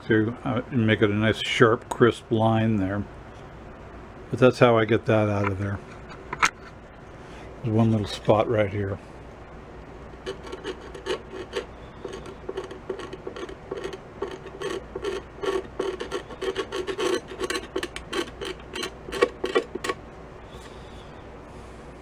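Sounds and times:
razor blade scraping paint: 10.2 - 20.0.

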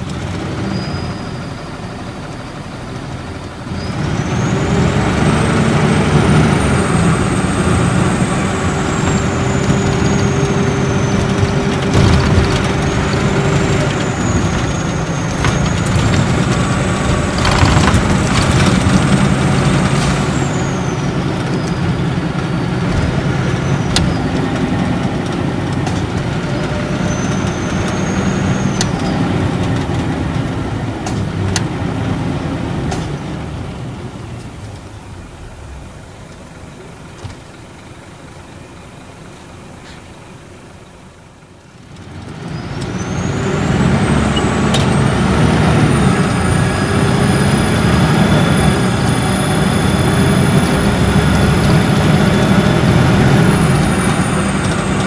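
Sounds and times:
diesel engine drone: 0.0 - 55.0
turbocharger whistle: 0.6 - 2.1, 3.7 - 17.9, 18.7 - 22.0, 26.8 - 29.1.

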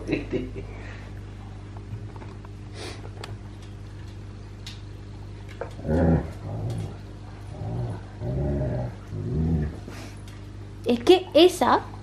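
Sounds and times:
dog growling: 5.7 - 10.0.

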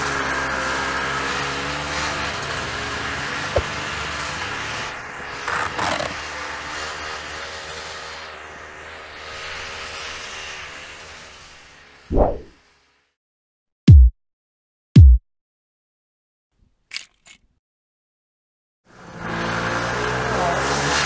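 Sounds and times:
small motorcycle engine running: 0.0 - 12.0, 18.9 - 21.0
short rushing noise: 12.1 - 12.6.

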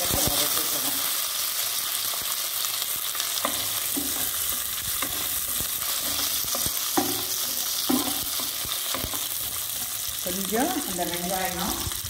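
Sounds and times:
vegetables sizzling in hot oil: 0.0 - 12.0
wooden spatula scraping and knocking pan: 3.4 - 11.9.

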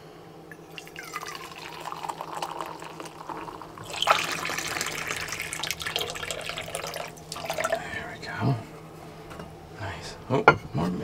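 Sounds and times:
liquid pouring into metal mug: 0.5 - 7.9
water running from spigot: 0.8 - 7.8.

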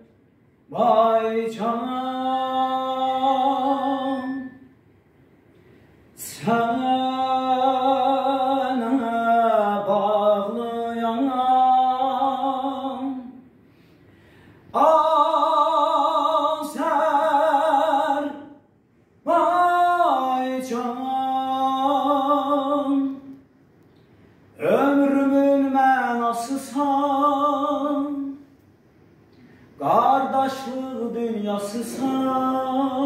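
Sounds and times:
man singing unaccompanied: 0.7 - 4.7, 6.2 - 13.4, 14.7 - 18.6, 19.2 - 23.4, 24.6 - 28.4, 29.8 - 33.0.

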